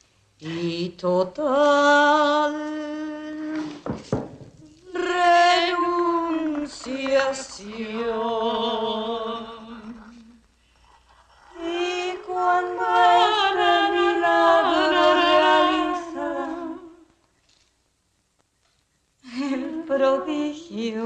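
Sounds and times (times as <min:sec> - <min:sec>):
person singing unaccompanied: 0:04.6 - 0:10.5, 0:11.4 - 0:17.2, 0:19.3 - 0:21.0.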